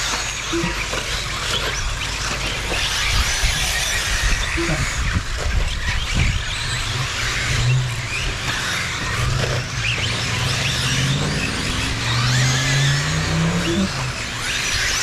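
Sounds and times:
electric motor whines: 0.0s - 15.0s
tyres on gravel: 0.0s - 15.0s
low hum rising in pitch: 3.1s - 15.0s.

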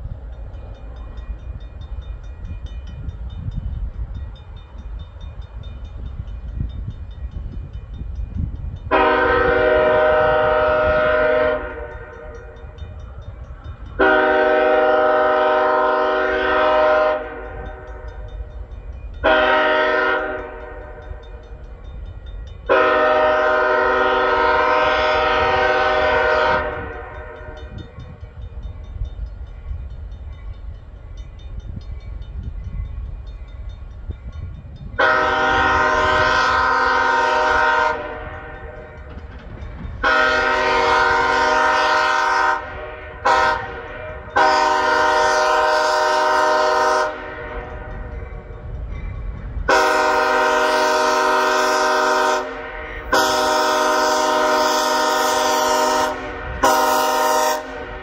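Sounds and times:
locomotive air horn blasts: 8.9s - 12.6s, 14.0s - 18.1s, 19.2s - 21.2s, 22.7s - 27.8s, 35.0s - 39.1s, 40.0s - 48.1s, 49.7s - 58.0s.

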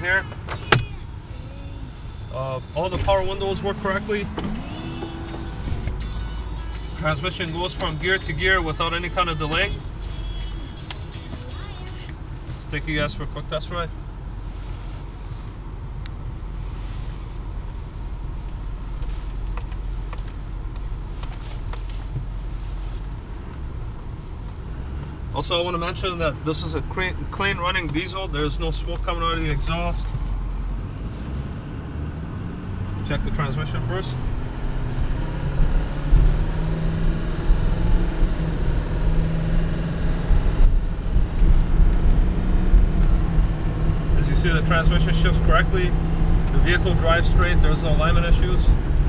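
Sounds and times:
diesel truck engine running: 0.0s - 49.0s
light metallic jingling clicks: 19.4s - 22.5s.

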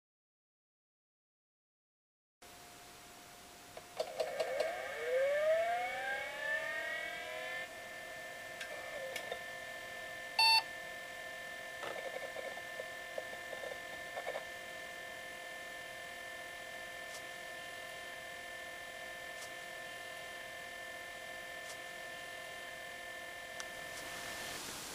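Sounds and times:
high machine whine: 2.5s - 24.6s
computer beep: 10.4s - 10.6s.

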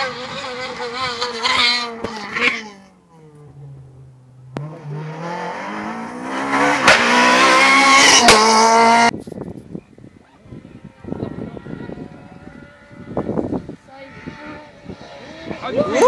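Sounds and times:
rally car engine accelerating: 0.0s - 9.1s, 10.6s - 16.0s
sharp cracks: 6.8s - 7.2s.

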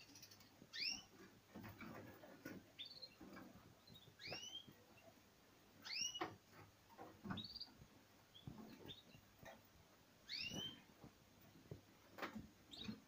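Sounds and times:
finches whistling calls: 0.7s - 1.1s, 5.8s - 6.2s, 10.3s - 10.8s.

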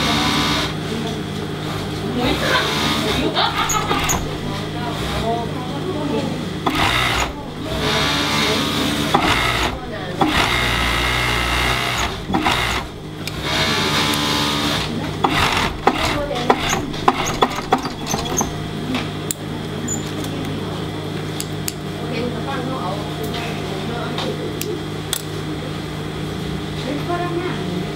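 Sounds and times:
industrial sewing machine stitching: 0.0s - 0.8s, 2.2s - 5.5s, 6.6s - 18.8s.

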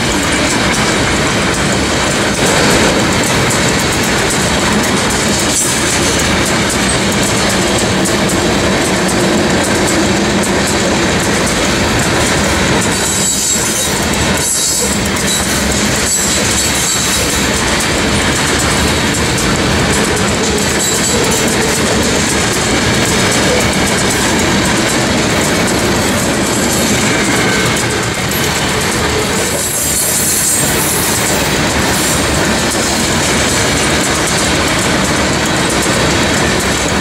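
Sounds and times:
train wheels rumbling on rail: 0.0s - 37.0s
wheel clickety-clack: 0.0s - 37.0s
wheel squeal: 13.0s - 17.4s.

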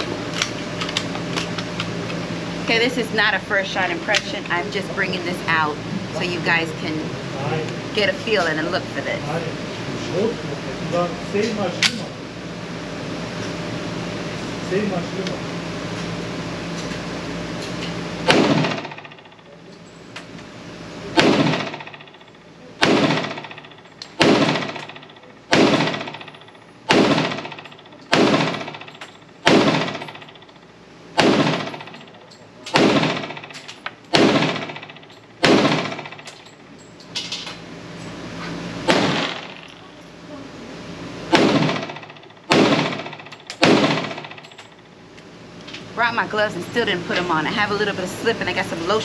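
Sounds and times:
pistol shots with echo: 18.2s - 18.9s, 21.1s - 21.8s, 22.8s - 23.5s, 24.2s - 24.9s, 25.5s - 26.2s, 26.9s - 27.5s, 28.1s - 28.8s, 29.4s - 30.1s, 31.2s - 31.8s, 32.7s - 33.4s, 34.1s - 34.8s, 35.4s - 36.1s, 38.9s - 39.6s, 41.3s - 44.3s.

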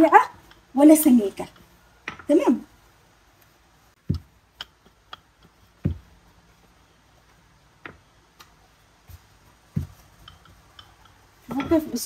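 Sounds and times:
dough thumping on work surface: 4.0s - 6.3s, 7.8s - 10.3s.

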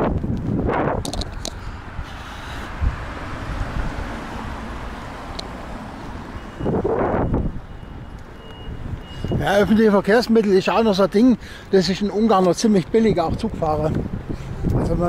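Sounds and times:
wind on microphone: 0.0s - 4.9s, 6.5s - 9.7s, 13.2s - 15.0s
street traffic passing: 0.0s - 15.0s.

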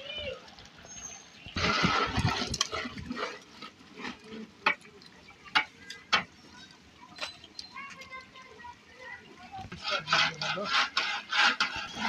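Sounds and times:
metal ladle scraping a pot: 1.6s - 4.5s, 9.7s - 12.0s.

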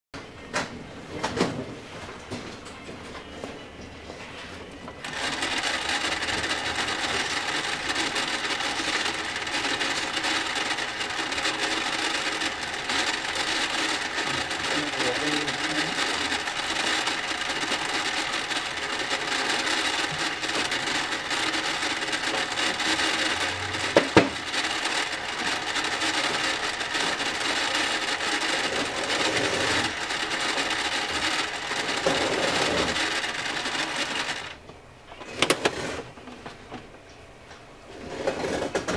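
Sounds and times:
toy microwave whirring: 4.9s - 34.6s.

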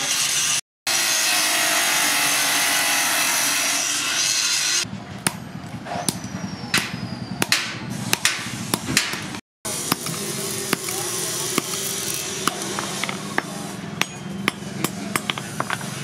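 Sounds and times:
cut-off saw grinding metal: 0.0s - 4.9s, 9.7s - 14.9s
hammer striking metal on anvil: 5.2s - 15.9s.

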